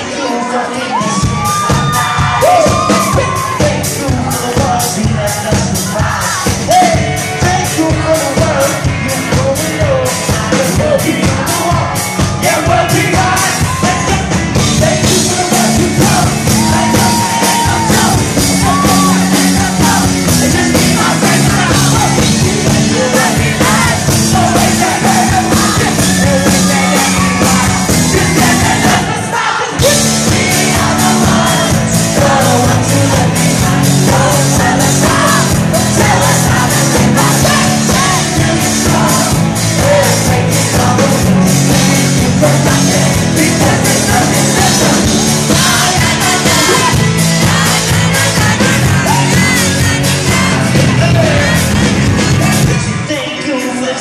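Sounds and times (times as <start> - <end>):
drums: 0.0 - 54.0
man singing into a microphone: 0.0 - 54.0.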